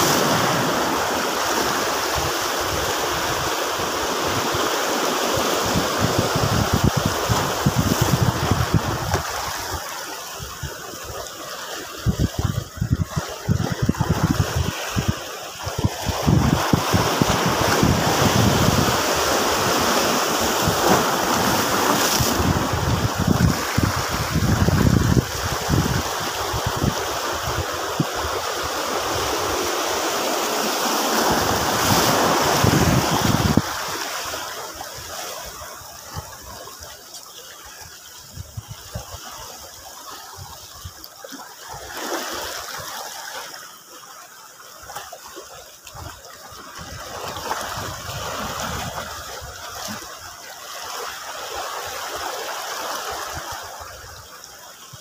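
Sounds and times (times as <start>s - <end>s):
waves washing over rocks: 0.0s - 55.0s
wind buffeting microphone: 5.4s - 11.2s, 11.9s - 29.7s, 31.1s - 34.0s, 46.8s - 50.0s.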